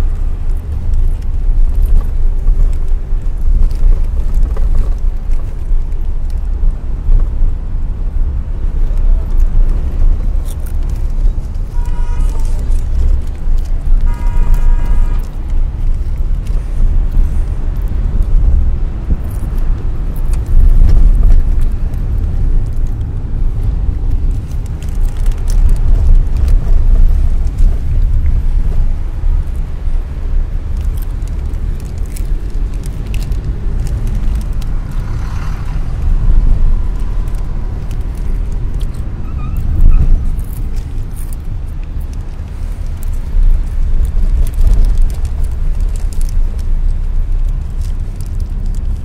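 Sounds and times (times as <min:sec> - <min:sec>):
car interior road noise: 0:00.0 - 0:49.0
car horn toots: 0:11.7 - 0:12.6, 0:14.0 - 0:15.3.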